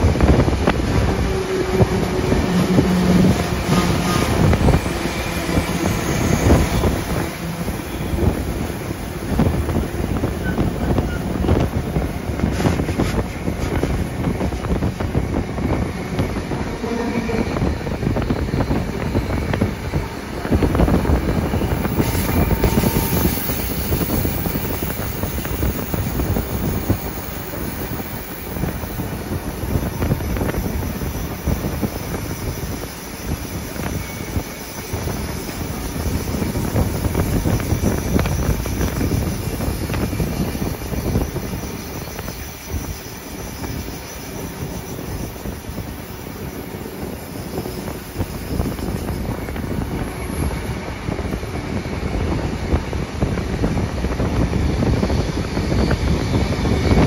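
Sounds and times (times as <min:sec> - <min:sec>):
train rumble and clatter: 0:00.0 - 0:57.0
wind buffeting microphone: 0:00.0 - 0:57.0.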